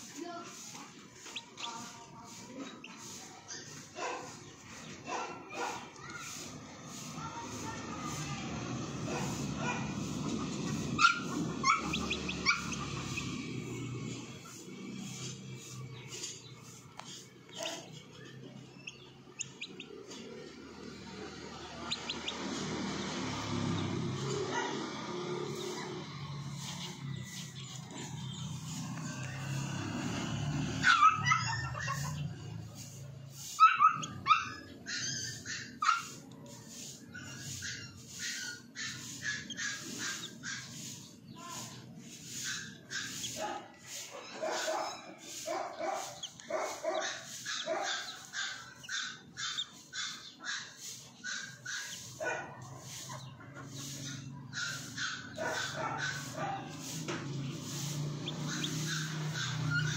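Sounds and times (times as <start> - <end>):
baby chicks peeping: 0.0 - 59.9.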